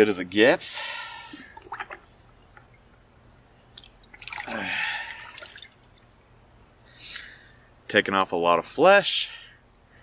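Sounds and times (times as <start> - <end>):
water sloshing and streaming: 1.3 - 2.8, 3.7 - 6.4.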